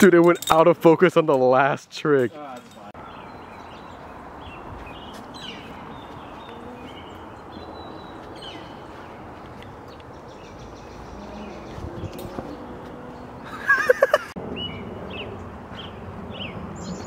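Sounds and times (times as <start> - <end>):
small birds chirping: 2.5 - 13.6.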